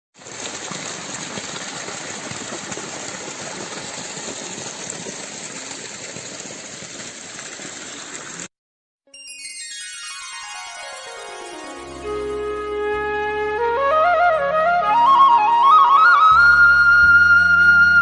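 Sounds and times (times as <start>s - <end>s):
waterfall splashing into pond: 0.1s - 8.5s.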